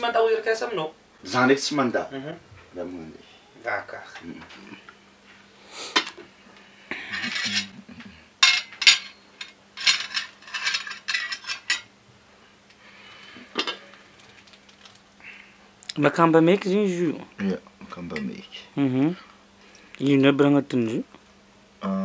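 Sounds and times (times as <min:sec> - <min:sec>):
plate scraping: 0:07.0 - 0:07.8
cutlery clinking on plates: 0:07.1 - 0:07.8, 0:08.4 - 0:11.9.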